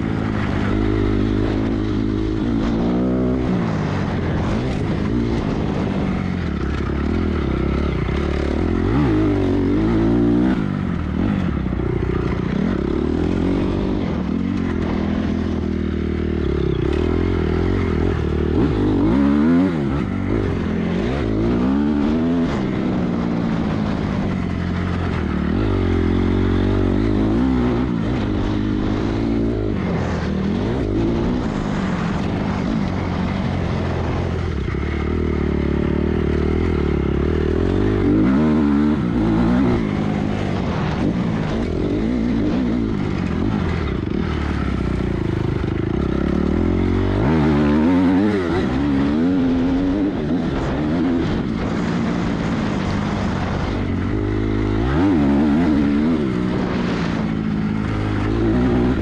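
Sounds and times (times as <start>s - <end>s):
off-road motorcycle engine revving: 0.0s - 59.0s.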